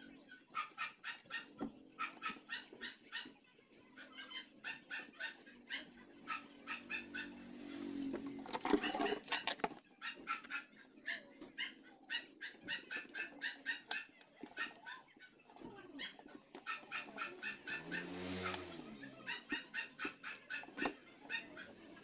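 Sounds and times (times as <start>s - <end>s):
scraping and clicking: 8.0s - 9.8s, 12.6s - 22.0s.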